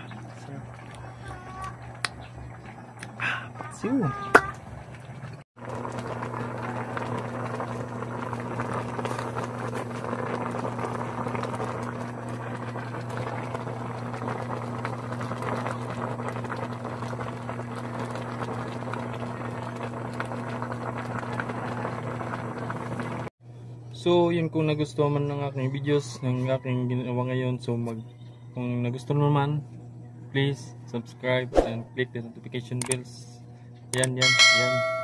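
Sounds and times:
broth bubbling in a pot: 0.0 - 23.3
constant low hum: 0.0 - 35.0.

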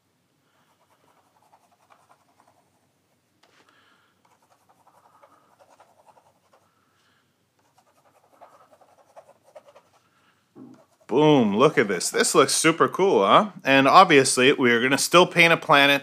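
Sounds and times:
paintbrush scratching through paint: 0.6 - 3.0, 4.2 - 6.7, 7.6 - 10.1, 10.7 - 12.4.

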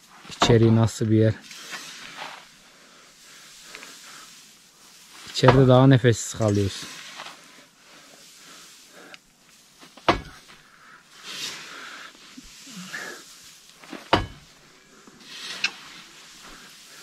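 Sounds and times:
straw rustling swishes: 1.4 - 17.0
shovel knocks: 10.0 - 10.5, 13.9 - 14.6.

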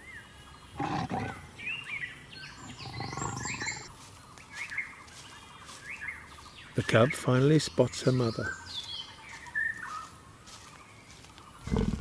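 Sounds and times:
birds chirping and whistling: 0.0 - 12.0
leopard calling: 0.7 - 1.6, 2.5 - 3.9.

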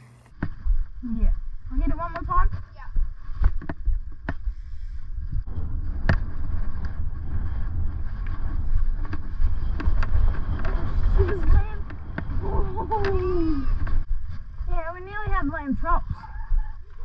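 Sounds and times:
low rumble of bike riding: 0.0 - 17.0
wind buffeting microphone: 0.6 - 17.0
bike rattling over bumps: 5.5 - 13.2.

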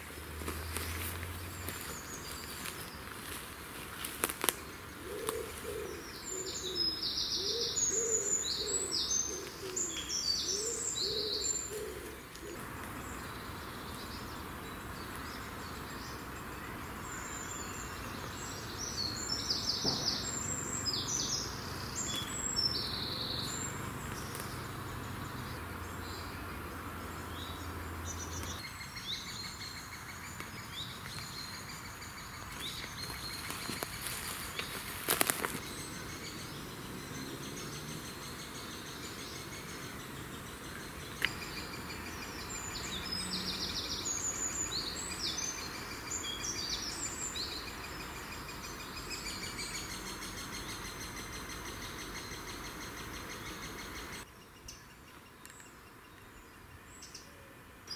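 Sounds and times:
songbirds singing: 0.0 - 57.9
pigeon cooing: 5.0 - 9.9, 10.5 - 12.6.

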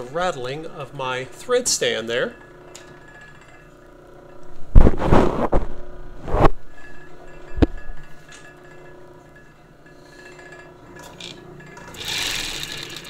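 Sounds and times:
thread stand rattle: 10.9 - 13.0
sewing machine motor humming: 11.0 - 13.0
sewing machine sewing: 11.2 - 13.0.

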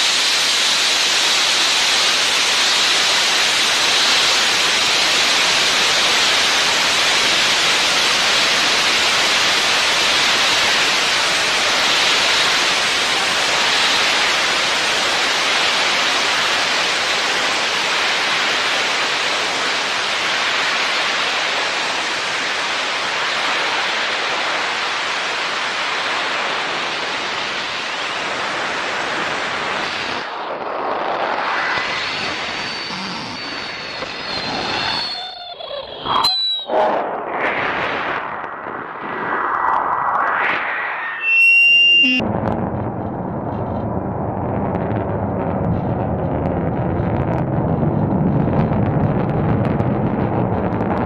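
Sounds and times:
loud rushing noise: 0.0 - 35.2, 35.8 - 50.8
faint high whistling tones: 31.7 - 36.8, 40.2 - 42.2.

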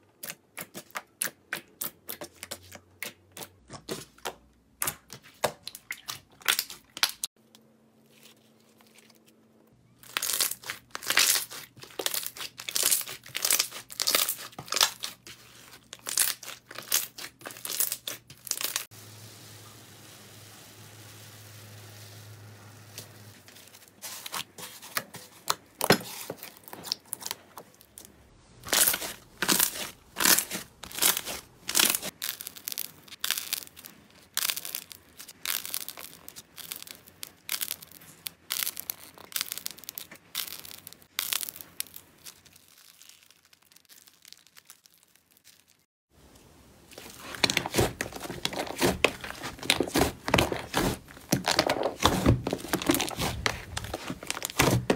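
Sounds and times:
slime crackling and popping: 10.0 - 18.9, 26.1 - 45.8, 46.9 - 54.9.

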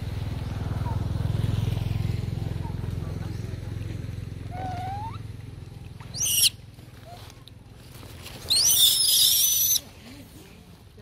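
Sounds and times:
baby monkey screaming: 4.5 - 5.3, 6.1 - 6.6, 8.4 - 9.8.

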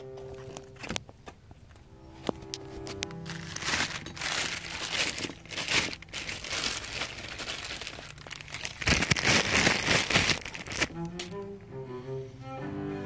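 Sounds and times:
plastic bag crinkling: 2.5 - 11.4.

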